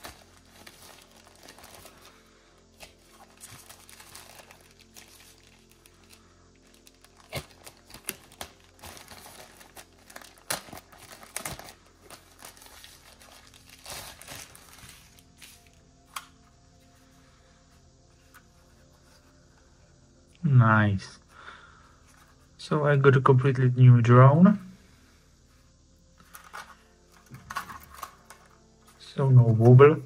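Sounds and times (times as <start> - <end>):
plastic wrapping crinkling: 0.0 - 16.3, 26.2 - 28.9.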